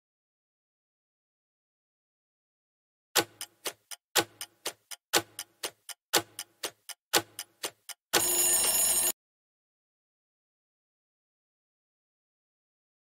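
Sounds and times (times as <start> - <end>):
clock-like timer ticking: 3.2 - 9.1
alarm ring: 8.2 - 9.2.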